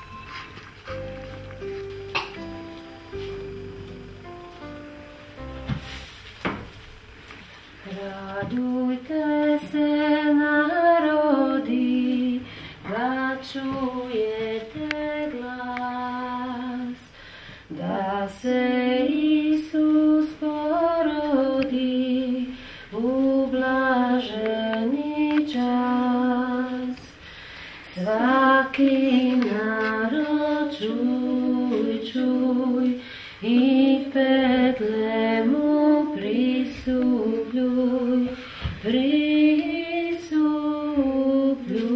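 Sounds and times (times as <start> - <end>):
woman singing unaccompanied: 7.8 - 27.2, 27.8 - 41.9.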